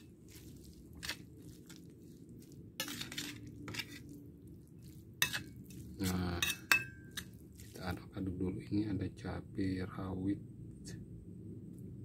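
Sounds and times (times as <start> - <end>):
metal spoon clinking against pan: 5.2 - 7.4.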